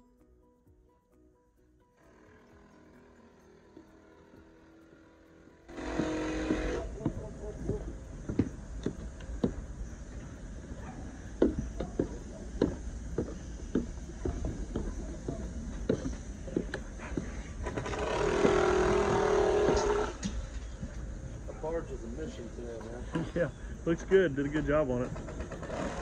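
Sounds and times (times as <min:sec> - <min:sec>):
machine drone: 0:01.8 - 0:26.0
footsteps on wooden decking: 0:05.7 - 0:24.3.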